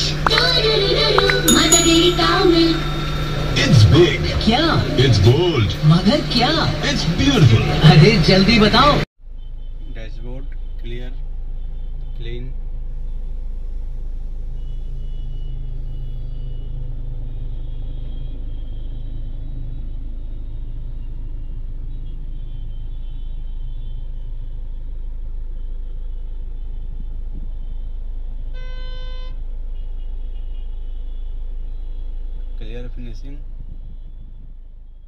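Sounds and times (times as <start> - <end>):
short electronic beep: 1.5 - 3.2.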